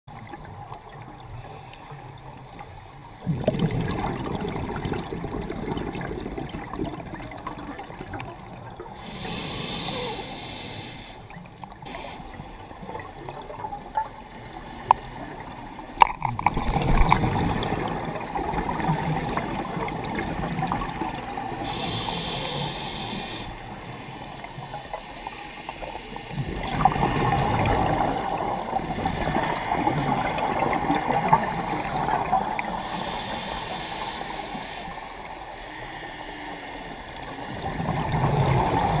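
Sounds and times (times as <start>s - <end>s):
bubbling gurgling exhaust: 3.2s - 9.1s
regulator hissing inhalations: 9.0s - 11.3s, 11.9s - 12.7s, 21.6s - 23.7s, 32.8s - 35.0s.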